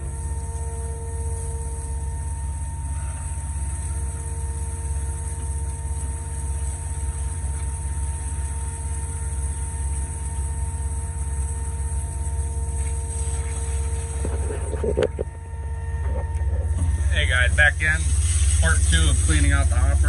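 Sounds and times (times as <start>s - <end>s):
hose spraying water: 0.0s - 15.0s, 16.6s - 20.0s
pump rumbling and whining: 0.0s - 20.0s.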